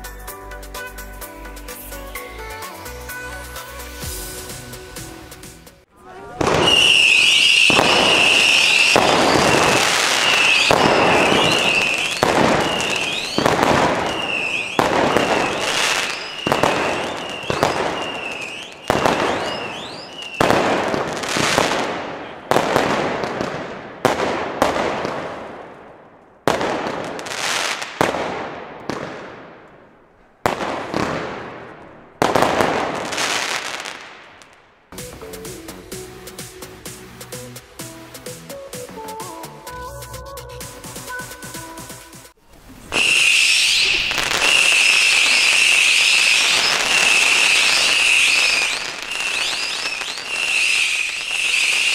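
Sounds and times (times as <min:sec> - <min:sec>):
fireworks barrage: 0:00.7 - 0:40.0, 0:40.6 - 0:51.9
firework bangs with echo: 0:06.3 - 0:35.4, 0:42.9 - 0:51.9
rising firework whistles: 0:06.4 - 0:24.8, 0:42.5 - 0:51.9.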